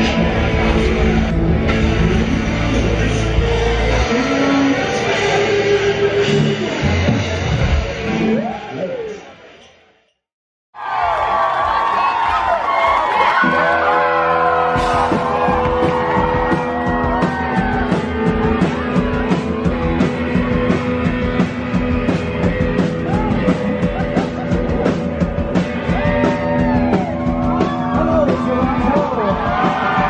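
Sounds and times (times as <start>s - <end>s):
electric guitar: 0.0s - 9.4s, 13.3s - 30.0s
drums: 0.0s - 9.9s, 10.8s - 30.0s.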